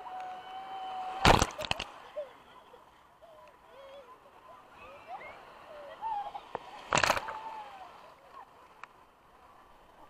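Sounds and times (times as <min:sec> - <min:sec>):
people's voices: 0:00.0 - 0:10.0
loud water splash: 0:01.0 - 0:01.9, 0:06.7 - 0:07.8.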